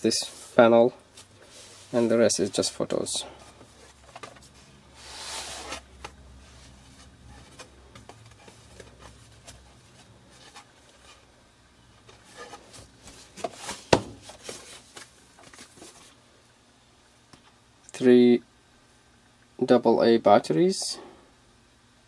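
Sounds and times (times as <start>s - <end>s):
cardboard pages turning: 3.7s - 11.2s.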